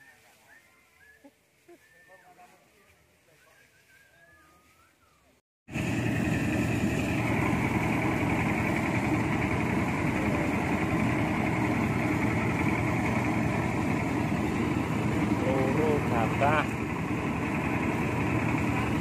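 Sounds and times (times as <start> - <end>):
rice thresher running: 5.7 - 19.0.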